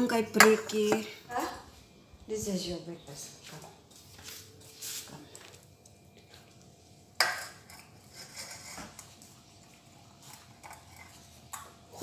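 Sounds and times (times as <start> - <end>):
metal bowl clanking on tile floor: 0.0 - 1.1, 7.2 - 9.0
dishes clinking: 7.2 - 9.0.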